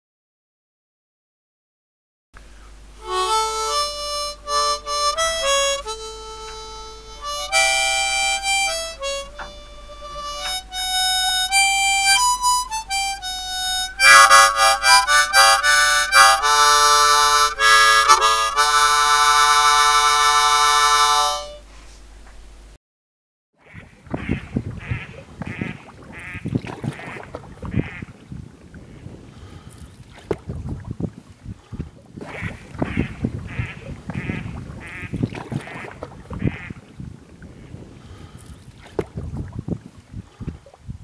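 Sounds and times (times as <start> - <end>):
solo harmonica tune: 3.0 - 21.7.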